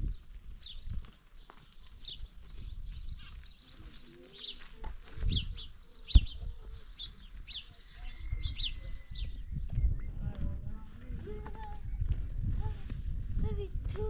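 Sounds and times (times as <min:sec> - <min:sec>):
bird chirping: 0:00.1 - 0:10.3.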